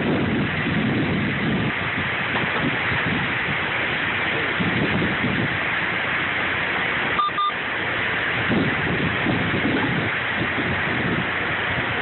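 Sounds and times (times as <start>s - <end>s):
wind buffeting microphone: 0.0s - 6.0s, 8.1s - 12.0s
heavy rain pouring: 0.0s - 12.0s
short electronic beeps: 7.2s - 7.6s.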